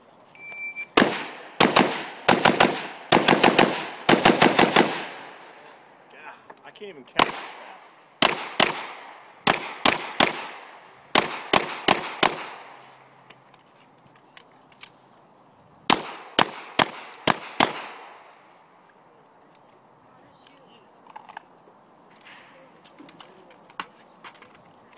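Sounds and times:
pistol shots with echo: 1.0 - 5.4, 7.2 - 12.8, 15.9 - 18.3.

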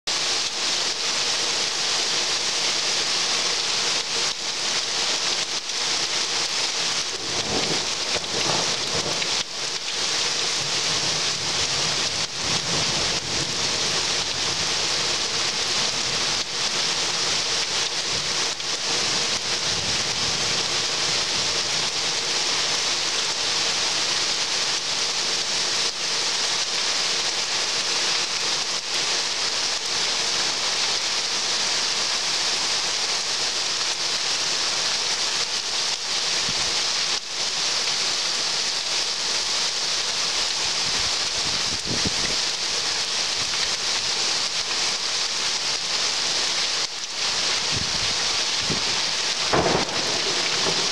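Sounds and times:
heavy rain pouring: 0.1 - 50.9
low thunder rumble: 7.1 - 9.4, 49.5 - 50.9.

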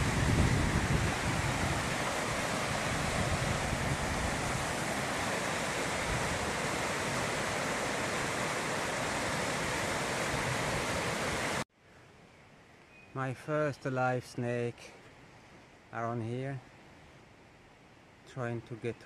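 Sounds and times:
water rushing over boulders: 0.0 - 11.6.

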